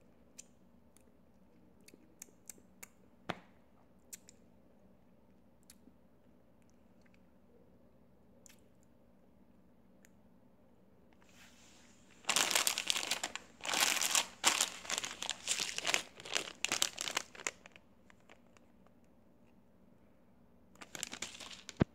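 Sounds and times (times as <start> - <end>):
plastic chip bag crinkling: 12.1 - 18.7, 20.8 - 21.9.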